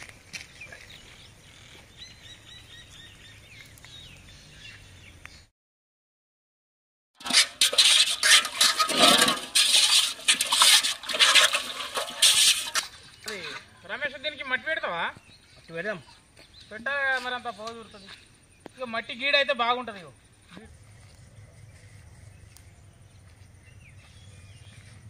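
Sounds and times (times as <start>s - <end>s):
metal pot clattering and scraping: 7.2s - 13.8s.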